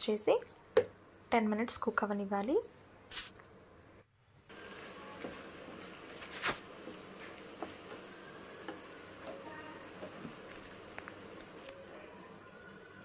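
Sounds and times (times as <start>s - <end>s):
food sizzling in a frying pan: 4.5s - 13.0s.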